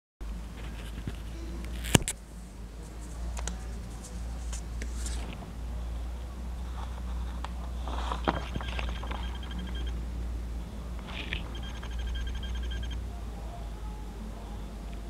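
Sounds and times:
steady low hum: 0.2s - 15.0s
paper rustling: 2.8s - 5.4s, 6.7s - 8.9s.

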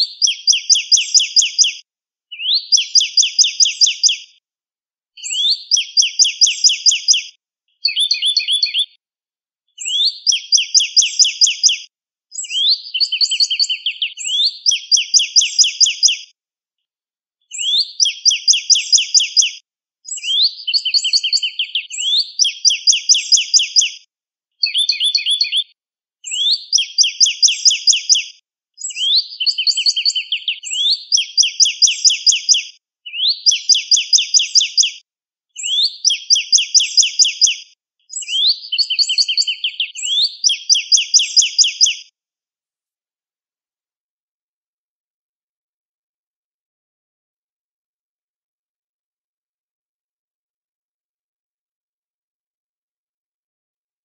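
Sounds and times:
bird singing whistled phrases: 0.0s - 4.2s, 5.2s - 9.0s, 9.8s - 16.2s, 17.5s - 24.0s, 24.6s - 35.0s, 35.6s - 42.0s.

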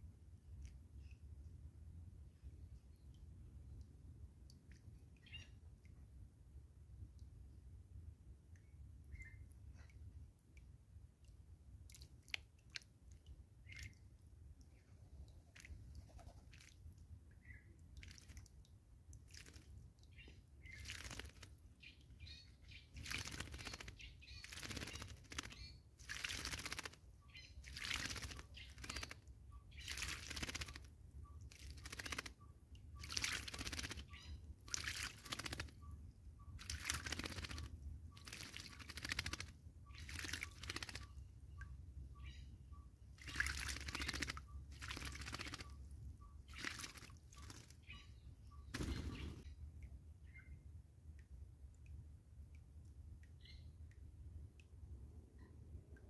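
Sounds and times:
bird splashing in water: 15.5s - 17.0s, 17.9s - 18.6s, 19.2s - 19.9s, 20.6s - 21.6s, 22.9s - 27.0s, 27.6s - 30.9s, 31.5s - 32.4s, 33.0s - 35.8s, 36.5s - 41.2s, 43.2s - 45.8s, 46.5s - 47.9s.

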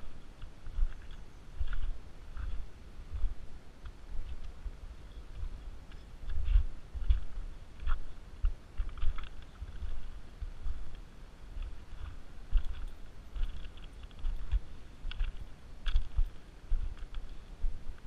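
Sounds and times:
footsteps crunching on pebbles: 0.0s - 18.0s.

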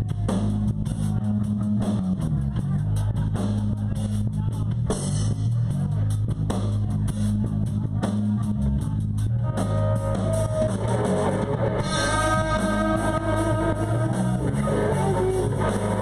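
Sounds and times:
bass guitar: 0.0s - 16.0s
drum kit beat: 0.0s - 16.0s
electric guitar: 9.4s - 16.0s.

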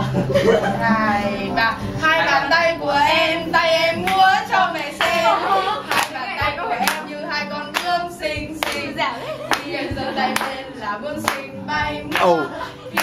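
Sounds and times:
people singing together: 0.0s - 13.0s
hand claps: 5.9s - 6.2s, 6.8s - 7.1s, 7.7s - 8.0s, 8.6s - 8.9s, 9.5s - 10.6s, 11.2s - 11.5s, 12.1s - 12.4s.

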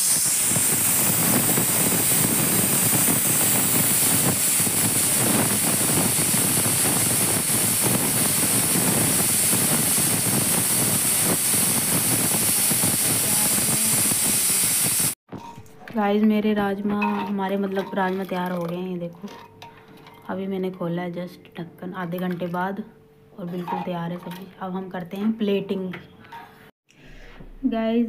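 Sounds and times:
pressure cooker hissing: 0.0s - 15.2s.

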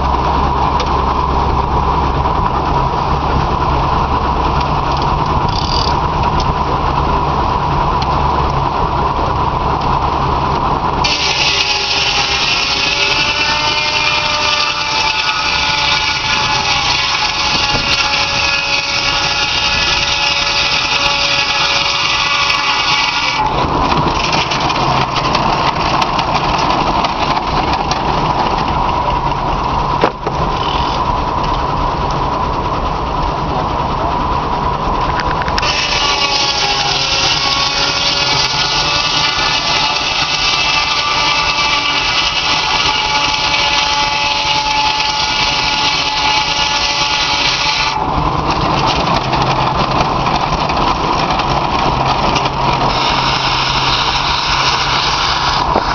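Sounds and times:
circular saw blade spinning: 0.0s - 8.7s, 11.0s - 31.2s, 35.6s - 55.9s
saw blade cutting log: 4.9s - 6.5s, 11.0s - 28.1s, 35.6s - 48.0s, 52.3s - 55.9s.

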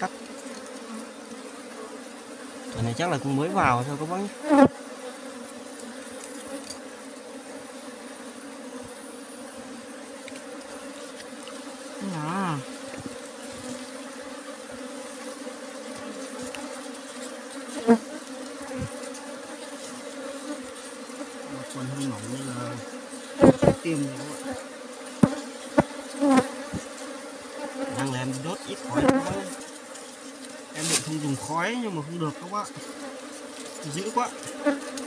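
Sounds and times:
bees buzzing: 0.0s - 35.0s.

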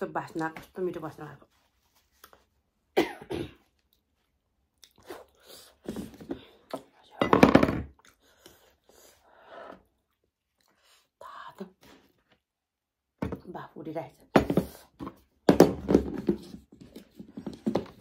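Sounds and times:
dishes knocking and rustling: 7.2s - 8.0s.

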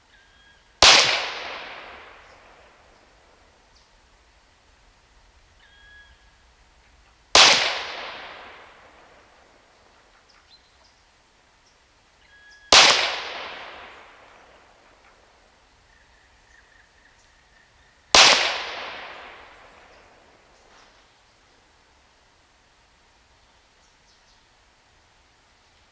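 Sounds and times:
faint bird chirps: 0.0s - 0.7s, 5.6s - 7.2s, 11.6s - 12.7s, 15.8s - 18.1s
air pistol shot with echo: 0.8s - 2.7s, 7.4s - 9.2s, 12.7s - 14.6s, 18.1s - 20.2s.

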